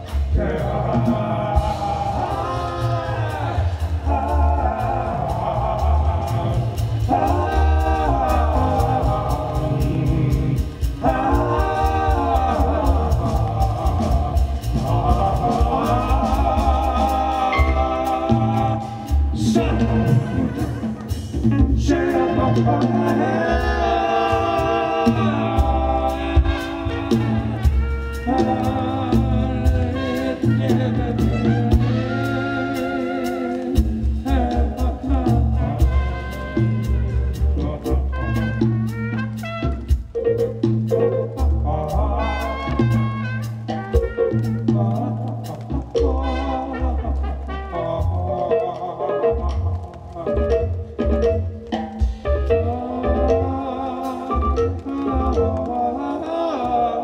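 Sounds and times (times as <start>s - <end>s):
steady beat: 0.0s - 48.8s
double bass: 0.0s - 57.0s
jazz ensemble playing: 0.0s - 57.0s.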